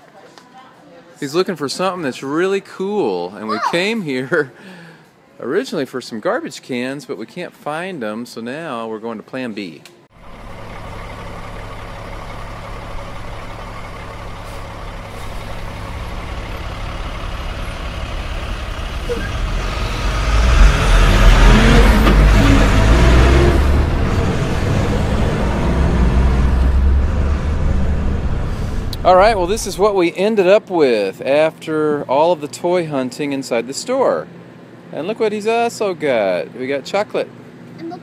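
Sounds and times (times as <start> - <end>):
truck engine rumbling: 10.2 - 30.0.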